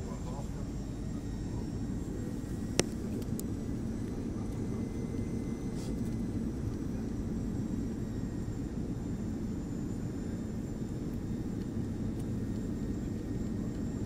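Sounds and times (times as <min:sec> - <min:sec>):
aircraft cabin engine rumble: 0:00.0 - 0:14.0.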